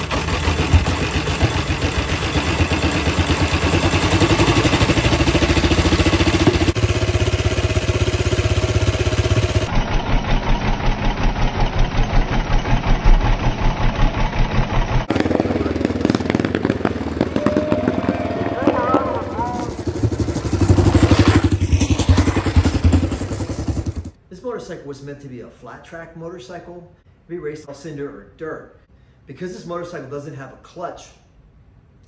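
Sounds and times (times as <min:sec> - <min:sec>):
single-cylinder engine running: 0:00.0 - 0:24.2.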